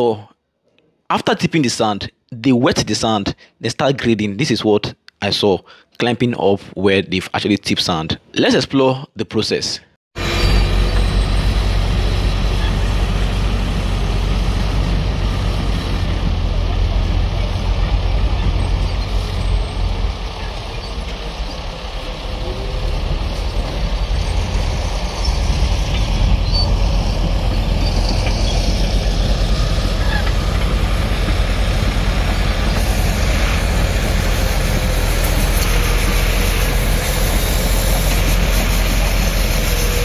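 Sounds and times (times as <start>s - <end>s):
bulldozer diesel engine: 10.2s - 40.0s
machines running nearby: 10.2s - 40.0s.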